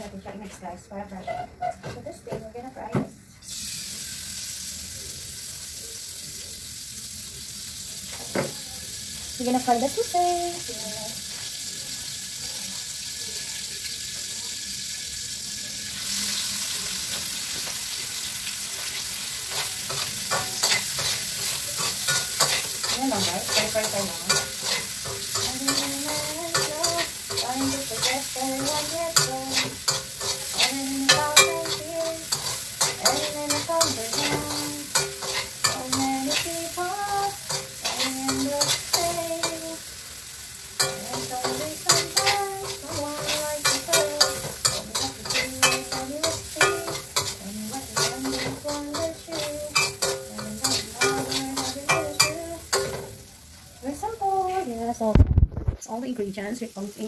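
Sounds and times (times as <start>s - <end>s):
spoon scraping a pan: 1.2s - 2.0s, 18.7s - 39.9s, 40.8s - 53.2s
sausage sizzling in a pan: 3.2s - 55.2s, 56.0s - 57.0s.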